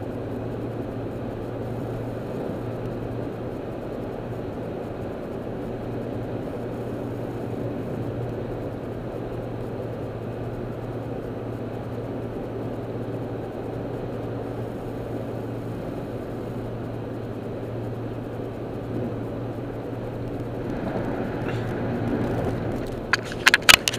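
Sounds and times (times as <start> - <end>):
low engine drone: 0.0 - 23.9
tyre and road rumble: 20.0 - 23.9.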